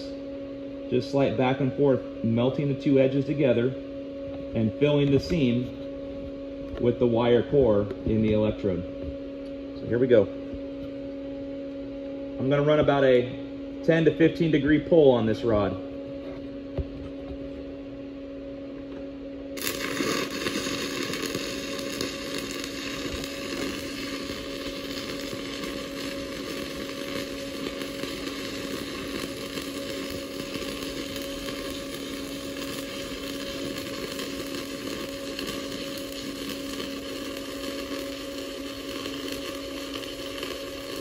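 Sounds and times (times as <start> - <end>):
low hum: 0.0 - 41.0
welding arc crackling: 19.6 - 41.0.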